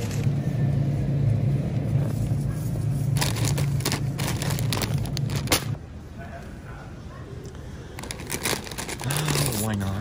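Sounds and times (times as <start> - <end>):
steady low hum: 0.0 - 10.0
plastic bag crinkling: 3.1 - 5.8, 8.0 - 10.0.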